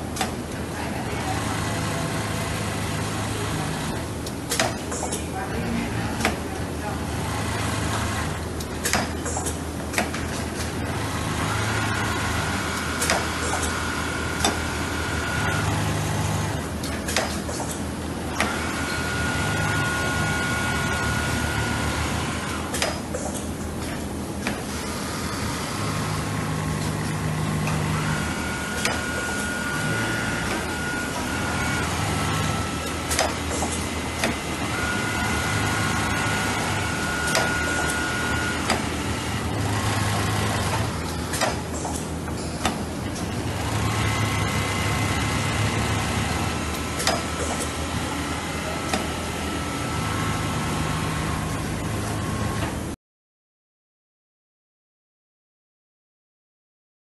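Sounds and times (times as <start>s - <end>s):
sewing machines humming: 0.1s - 4.5s, 5.5s - 17.0s, 17.8s - 22.8s, 24.6s - 42.3s, 42.9s - 52.9s
high machine whine: 24.8s - 52.9s.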